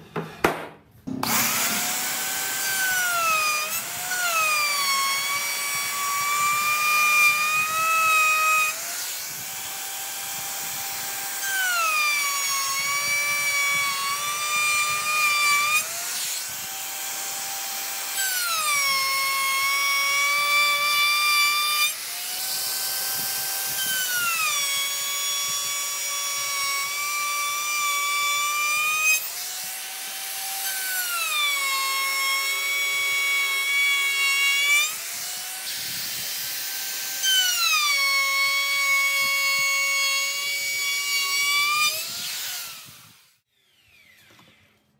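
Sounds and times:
electric router cutting wood: 1.1 - 44.8.

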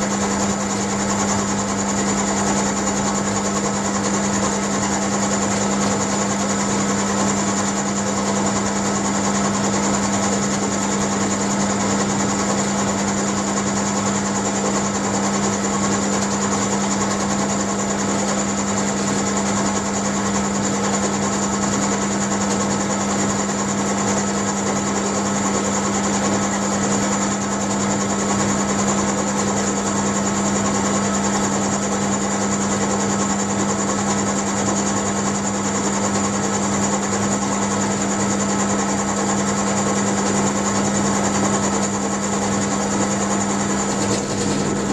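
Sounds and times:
end mill cutting whine: 0.0 - 33.0, 38.8 - 44.9
mill-drill motor hum: 0.0 - 44.9.

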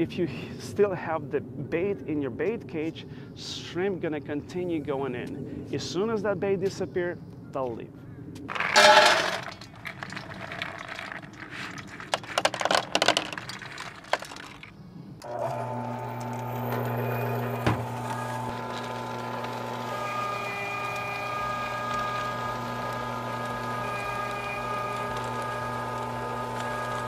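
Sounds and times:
pellets rattling onto steel tray: 8.5 - 14.7
meat grinder motor humming: 15.2 - 27.0.

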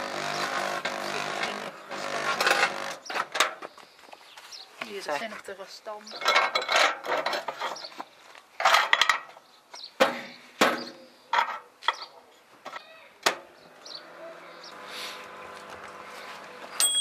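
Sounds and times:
rustling and scraping: 6.2 - 9.9.

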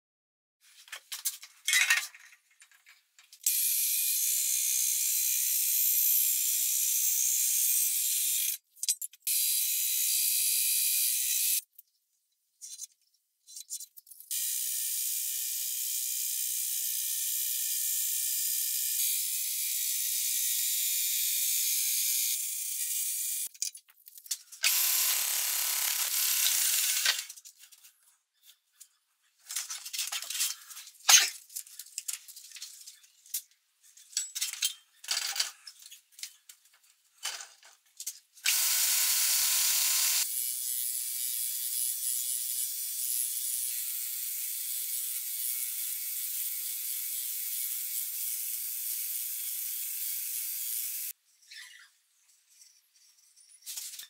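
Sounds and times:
band saw cutting wood: 24.6 - 27.3
belt grinder sanding wood: 24.6 - 27.3, 38.5 - 40.4.

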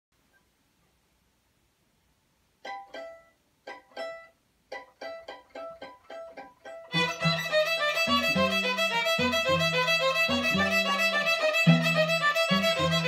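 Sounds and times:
cello bass line: 6.9 - 13.0
violin playing short notes: 6.9 - 13.0.

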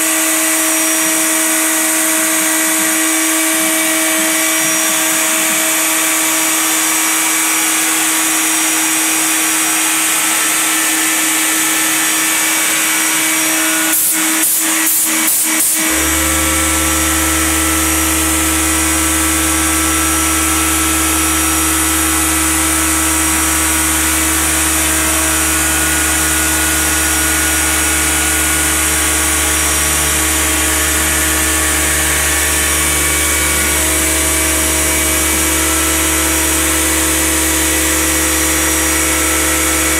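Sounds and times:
router spindle whining: 0.0 - 39.9
low hum: 15.8 - 39.9.

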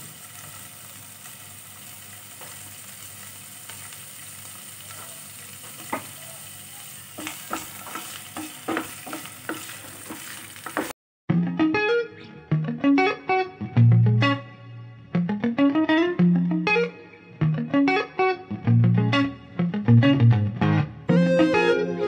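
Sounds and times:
cheese sizzling in oil: 0.0 - 11.0
wooden spatula scraping pan: 7.2 - 10.9
guitar music: 11.3 - 22.0.

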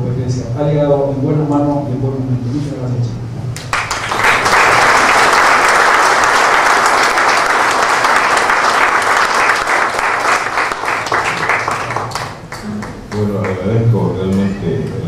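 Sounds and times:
audience applause: 3.7 - 13.6.

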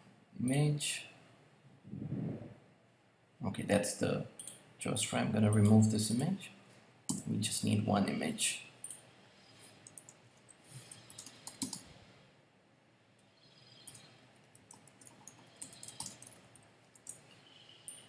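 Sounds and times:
keyboard typing: 9.8 - 11.9, 13.8 - 18.0.

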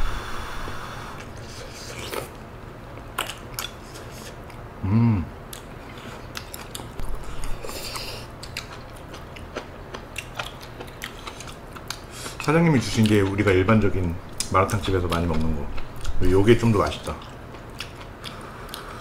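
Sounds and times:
chewing and biting: 3.0 - 4.6, 5.5 - 13.6, 17.1 - 19.0.

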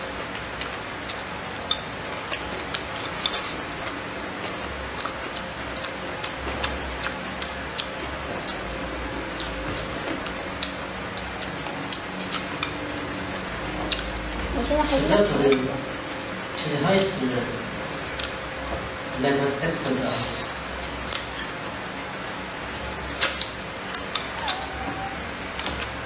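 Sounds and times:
close chewing: 0.3 - 15.6, 22.7 - 26.0.

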